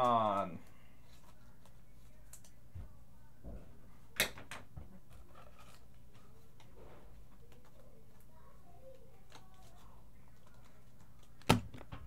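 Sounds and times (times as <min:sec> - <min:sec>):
cards clicking and rustling: 0:00.0 - 0:02.6, 0:05.1 - 0:12.0.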